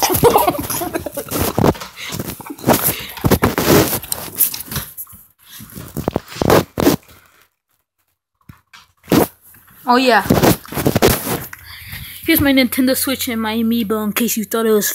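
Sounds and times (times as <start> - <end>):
microphone rubbing on fur: 0.8 - 4.5, 10.2 - 12.4.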